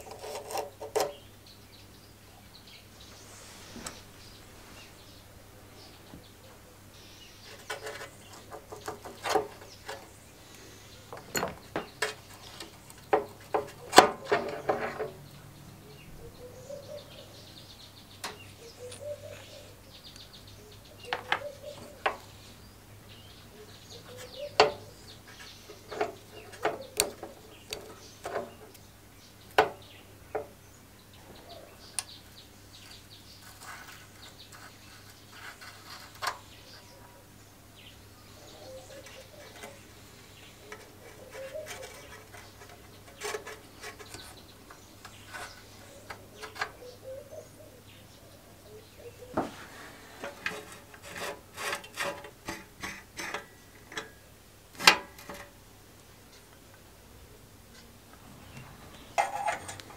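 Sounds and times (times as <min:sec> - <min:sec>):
metal parts clicking and knocking: 0:11.1 - 0:15.2
faint bird calls: 0:15.8 - 0:22.6, 0:23.2 - 0:28.8, 0:31.1 - 0:50.7.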